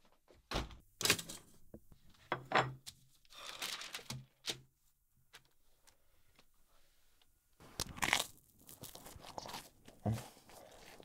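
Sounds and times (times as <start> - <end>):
newspaper rustling: 3.2 - 4.6.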